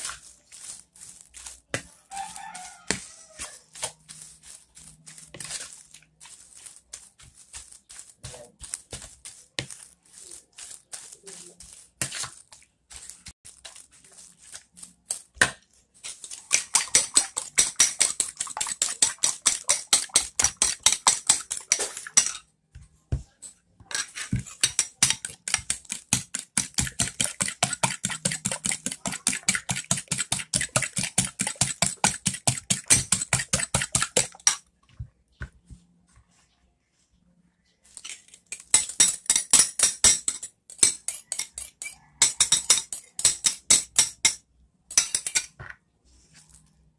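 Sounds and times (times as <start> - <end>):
spoon beating eggs in a bowl: 0.0 - 34.8, 37.9 - 45.7.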